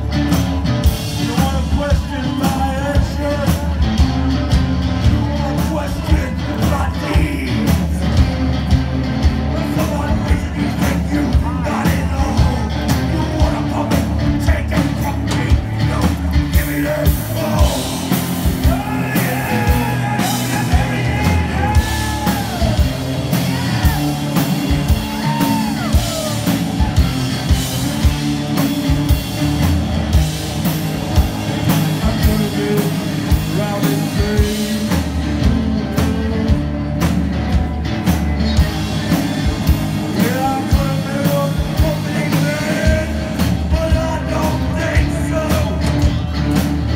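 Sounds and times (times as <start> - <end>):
drum kit beat: 0.0 - 46.9
electric guitar: 0.0 - 46.9
person shouting vocals: 18.6 - 24.2.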